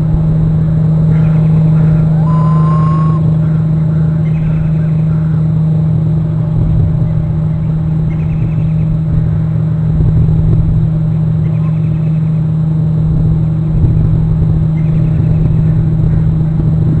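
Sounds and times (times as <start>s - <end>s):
constant low hum: 0.0s - 17.0s
wind rumble on microphone: 0.0s - 17.0s
faint high notes: 2.2s - 3.3s.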